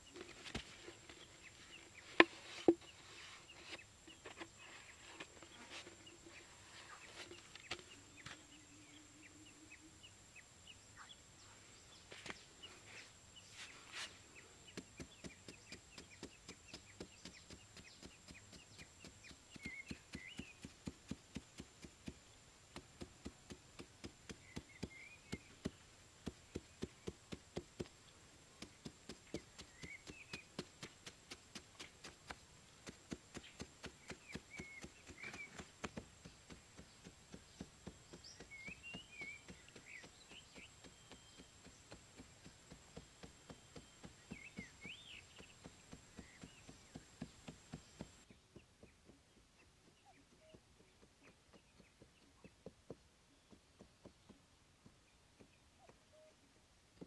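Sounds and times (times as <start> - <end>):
bird chirps: 5.5 - 22.2, 24.3 - 27.4, 28.6 - 31.0, 32.8 - 52.7.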